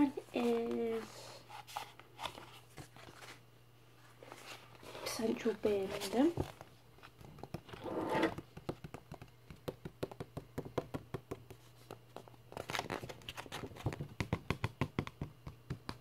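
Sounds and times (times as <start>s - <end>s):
paper pages rustling: 0.4s - 3.4s, 11.6s - 14.0s
fingernails tapping on book: 7.1s - 7.8s, 8.4s - 12.3s, 13.7s - 16.0s.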